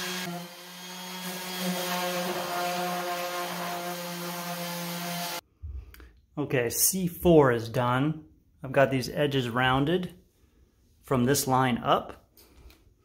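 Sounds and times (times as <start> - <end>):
orbital sander running: 0.0 - 5.4.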